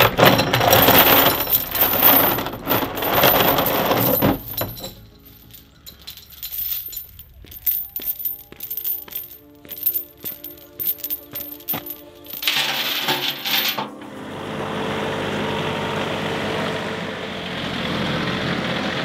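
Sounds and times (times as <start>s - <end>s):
heavy chain rattling on plastic: 0.0s - 13.8s.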